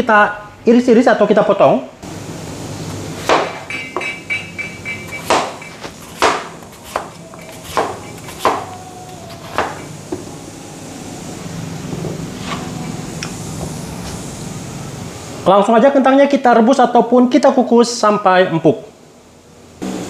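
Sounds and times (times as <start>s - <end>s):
knife chopping on cutting board: 3.2s - 4.2s, 5.1s - 8.7s, 9.4s - 9.8s.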